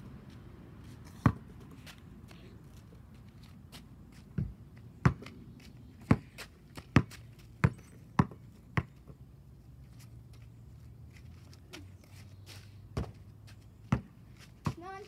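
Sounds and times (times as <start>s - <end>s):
basketball bouncing on asphalt: 1.2s - 2.0s, 4.2s - 9.2s, 12.9s - 15.0s.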